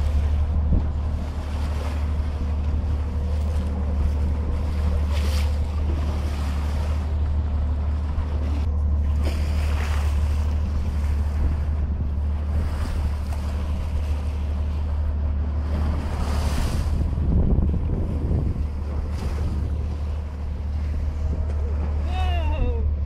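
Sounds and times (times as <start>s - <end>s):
boat engine drone: 0.0s - 23.0s
rushing water: 0.0s - 23.0s
water splashes: 0.0s - 23.0s
wind buffeting microphone: 0.0s - 23.0s.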